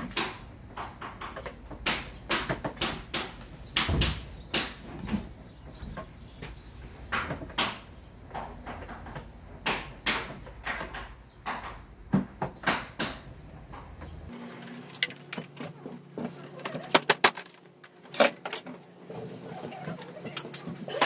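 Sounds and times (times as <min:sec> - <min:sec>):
plastic panels clicking and knocking: 0:00.0 - 0:14.2.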